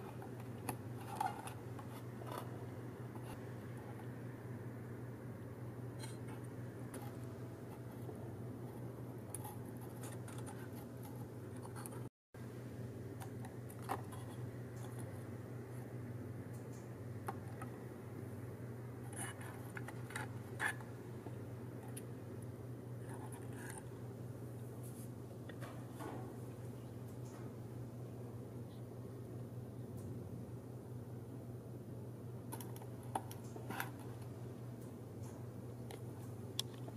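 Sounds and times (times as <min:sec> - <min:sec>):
paper pieces scratching and clicking: 0:00.0 - 0:02.6, 0:08.7 - 0:12.1
steady low hum: 0:00.0 - 0:36.9.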